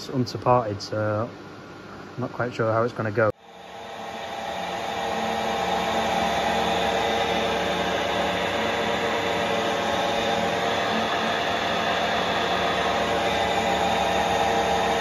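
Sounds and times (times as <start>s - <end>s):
metal lathe cutting steel: 3.4s - 15.0s.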